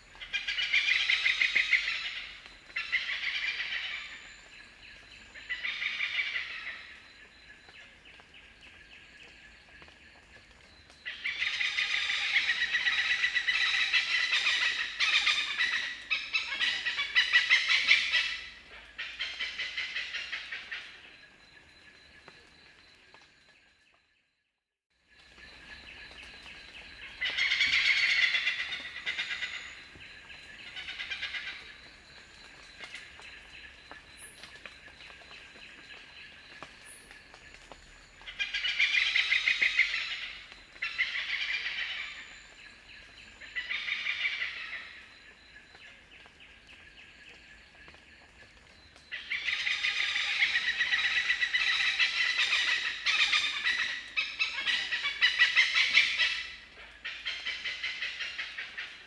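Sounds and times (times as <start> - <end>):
hornbills cackling: 27.2 - 29.8, 38.3 - 42.2, 49.1 - 59.0.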